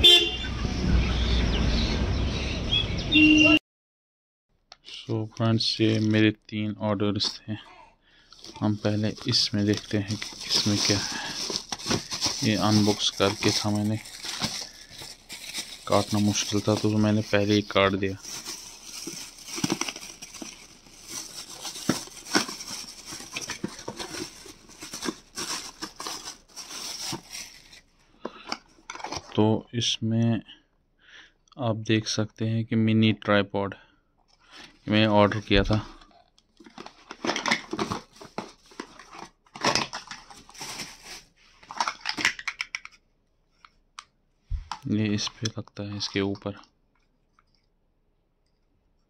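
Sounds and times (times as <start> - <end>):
packaging rustling and crinkling: 8.3 - 29.4, 35.2 - 42.8.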